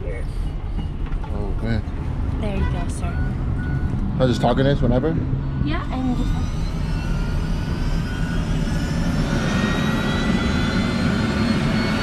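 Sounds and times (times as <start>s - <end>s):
helicopter engine and rotor running: 3.2s - 12.0s.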